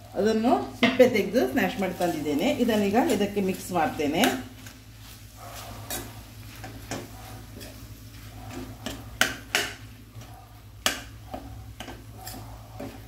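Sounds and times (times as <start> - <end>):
low steady hum: 0.0 - 13.0
metal spoon scraping a pan: 5.1 - 13.0.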